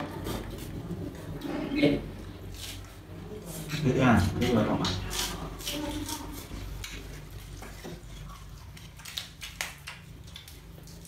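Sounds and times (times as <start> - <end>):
chewing: 4.9 - 11.0.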